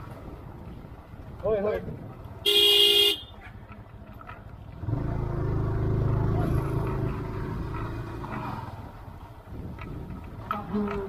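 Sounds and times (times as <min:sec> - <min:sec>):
motorcycle engine rumbling: 0:00.0 - 0:11.0.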